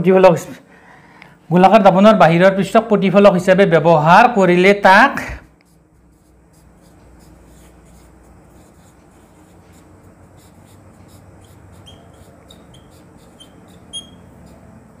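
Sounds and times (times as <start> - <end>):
marker scratching on whiteboard: 5.6 - 15.0
marker squeaks: 5.7 - 15.0.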